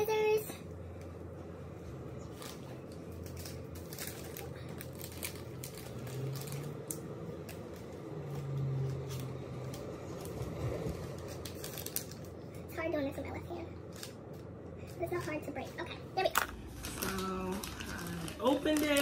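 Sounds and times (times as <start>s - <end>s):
plastic mailer bag crinkling: 2.4s - 12.4s, 16.3s - 19.0s.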